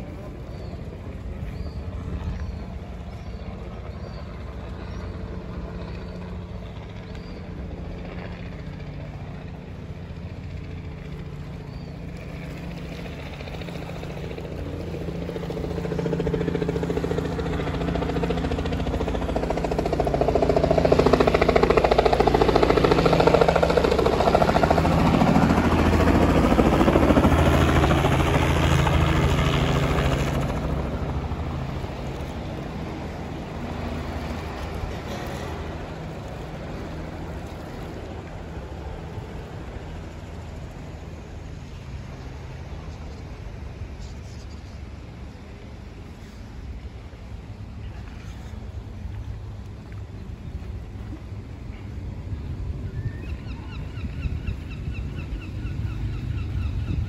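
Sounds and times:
engine hum: 0.0s - 57.0s.

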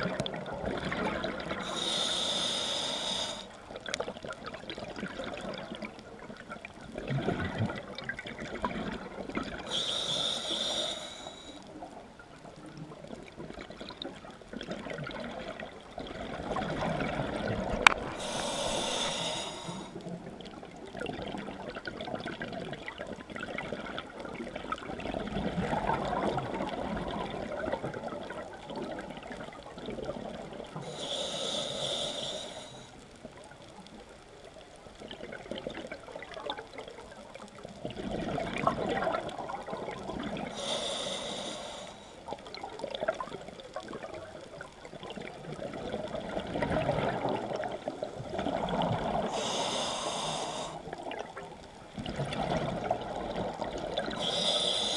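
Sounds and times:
exhaled bubbles rushing: 0.0s - 1.7s, 14.6s - 18.8s, 37.8s - 40.5s, 45.1s - 49.4s, 51.0s - 54.2s
regulator hissing inhale: 1.6s - 3.6s, 9.7s - 11.8s, 17.8s - 20.0s, 30.8s - 33.0s, 40.5s - 42.3s, 49.2s - 51.0s, 54.1s - 54.9s.

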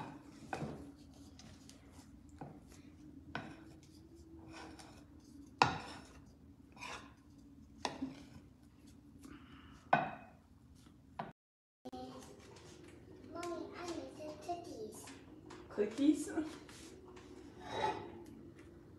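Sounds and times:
faint steady hum: 0.1s - 11.2s
spoon knocking and scraping pot: 3.3s - 8.4s.

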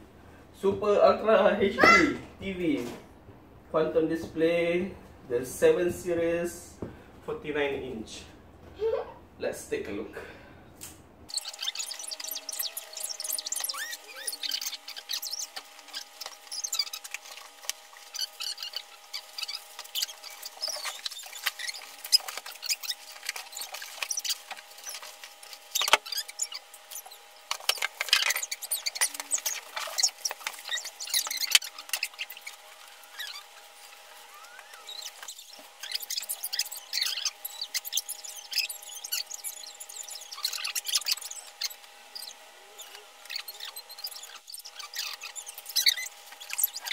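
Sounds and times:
squeaks and clicks: 11.3s - 46.9s
packaging rustling and crinkling: 11.4s - 42.3s.

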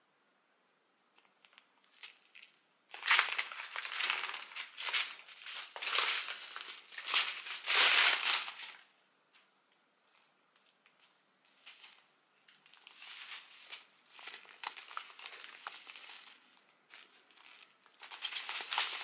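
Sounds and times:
plastic bags crinkling: 1.4s - 8.9s, 11.6s - 19.0s.

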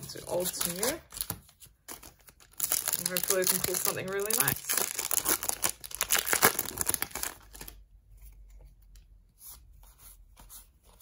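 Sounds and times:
foil wrapper tearing and crinkling: 1.9s - 7.8s.

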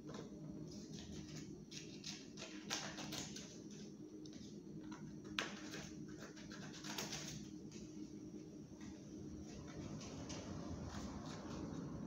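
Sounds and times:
scissors snipping paper: 0.9s - 7.5s.

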